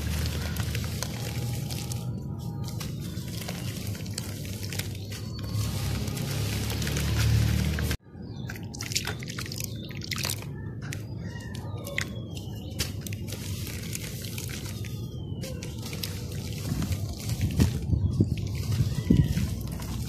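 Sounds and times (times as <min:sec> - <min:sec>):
dirt crackling and fizzing in water: 0:00.0 - 0:08.0, 0:12.4 - 0:20.0.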